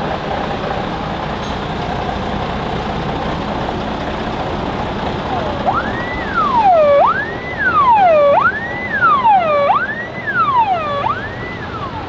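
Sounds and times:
low vehicle noise: 0.0 - 12.0
vehicle siren wailing: 5.1 - 12.0.

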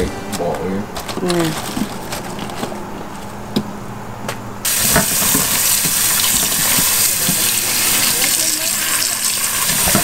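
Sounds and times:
leaves being handled: 0.3 - 3.3
tap water running into bowl: 4.7 - 10.0.

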